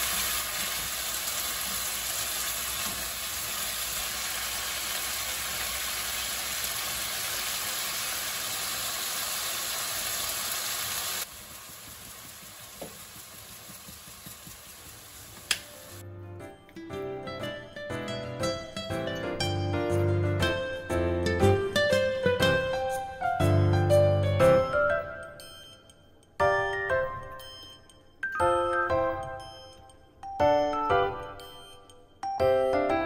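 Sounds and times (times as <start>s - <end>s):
food sizzling in a wok: 0.0s - 16.0s
wooden spatula stirring: 11.3s - 15.5s.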